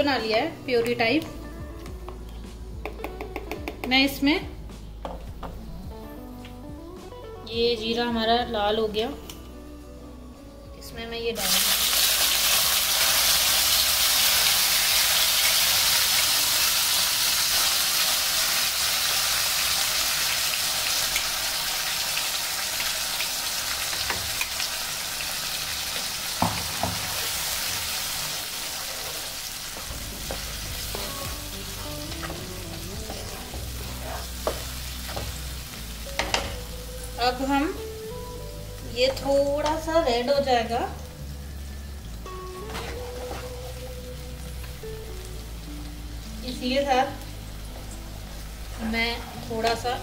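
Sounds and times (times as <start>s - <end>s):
puree sizzling in hot oil: 11.4s - 50.0s.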